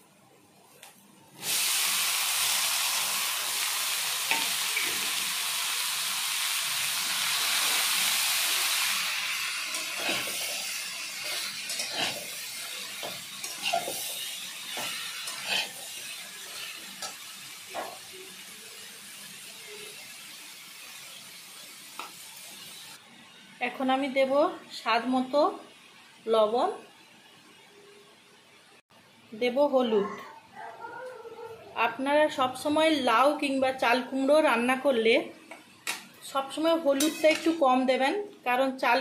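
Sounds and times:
food sizzling in hot oil: 0:01.4 - 0:23.0, 0:35.8 - 0:38.1
metal spatula scraping pan: 0:09.7 - 0:17.1, 0:37.0 - 0:37.6.

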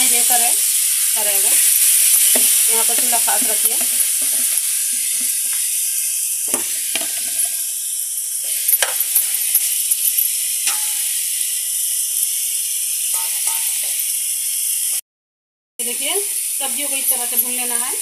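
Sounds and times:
meat sizzling in frying pan: 0:00.0 - 0:15.0, 0:15.8 - 0:18.0
spoon clicking and scraping: 0:08.4 - 0:11.1, 0:13.1 - 0:14.1.

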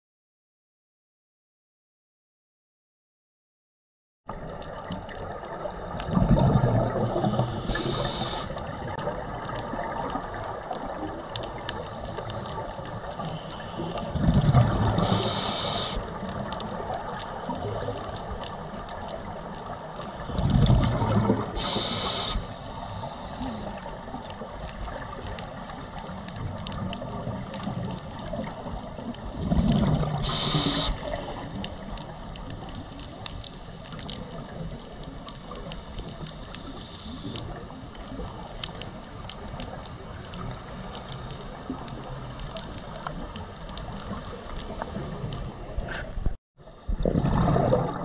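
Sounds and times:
small crackling clicks: 0:04.3 - 0:46.1
underwater water noise: 0:04.3 - 0:48.0
gurgling rush of exhaust bubbles: 0:04.7 - 0:13.2, 0:13.8 - 0:18.3, 0:19.2 - 0:22.2, 0:26.4 - 0:31.3, 0:46.8 - 0:48.0.

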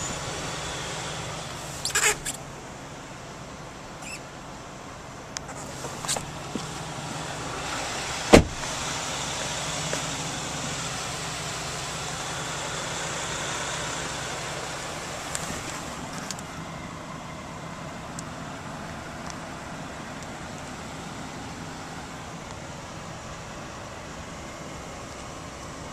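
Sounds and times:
truck cabin hum and hiss: 0:00.0 - 0:25.9
sharp knock: 0:08.3 - 0:08.6.

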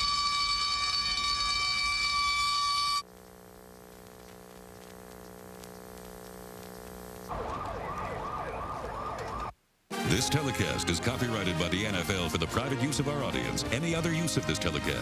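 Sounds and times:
siren-like warbling tone: 0:00.0 - 0:03.0.

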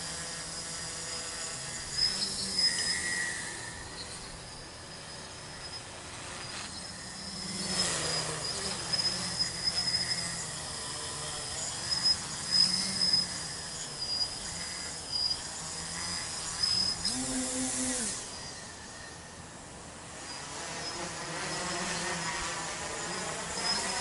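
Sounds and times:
drone motors humming: 0:00.0 - 0:24.0.

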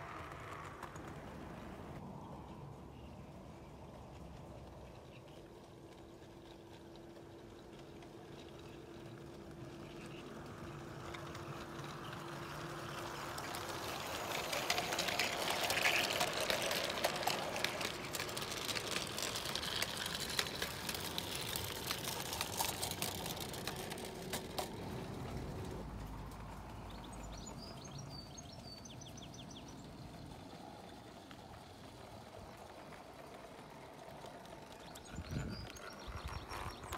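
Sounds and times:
model train wheels clicking: 0:00.0 - 0:02.0, 0:03.0 - 0:36.9
birds chirping: 0:34.1 - 0:36.9.

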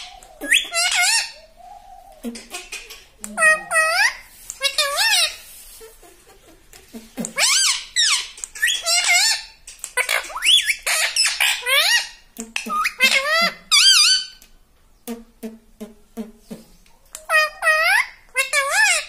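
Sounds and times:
parakeet chattering: 0:00.0 - 0:01.4, 0:02.2 - 0:05.4, 0:06.8 - 0:14.4, 0:16.5 - 0:19.0.

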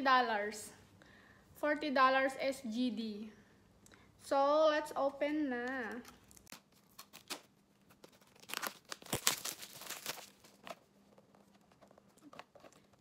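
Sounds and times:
wrapping tearing and crinkling: 0:05.6 - 0:13.0.

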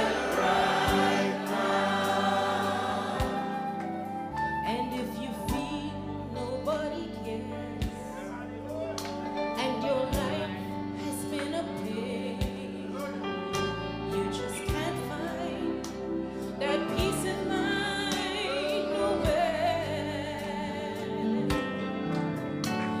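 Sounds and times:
woman singing gospel with vibrato: 0:00.0 - 0:08.2, 0:14.2 - 0:15.9, 0:16.5 - 0:21.6
sustained instrumental chords: 0:00.0 - 0:23.0.

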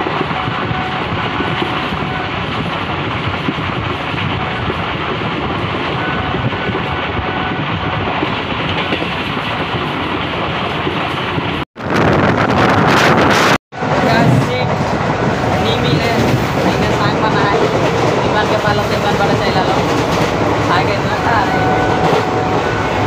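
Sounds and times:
train wheels rumbling on track: 0:00.0 - 0:23.0.

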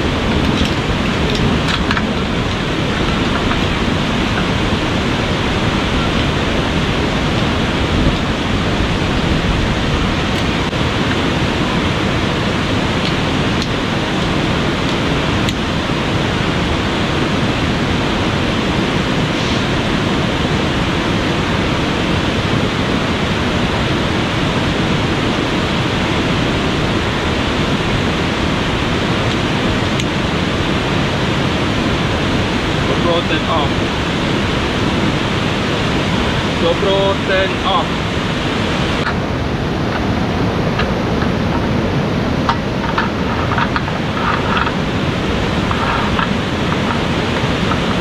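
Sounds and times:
fast-flowing river rushing: 0:00.0 - 0:48.0.

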